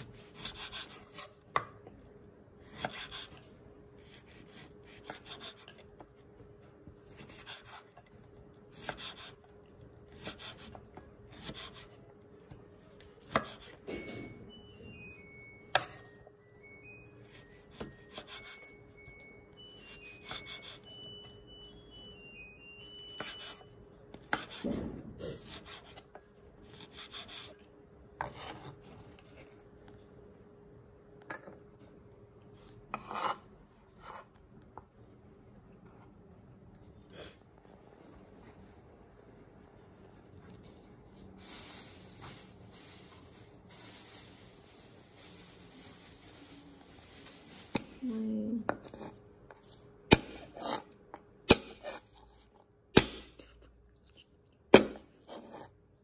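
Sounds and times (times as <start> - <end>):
knife dicing on wooden board: 2.6 - 3.4, 10.2 - 11.9, 13.2 - 13.9, 24.3 - 24.8, 53.0 - 53.4
faint high-note tune: 13.9 - 24.0.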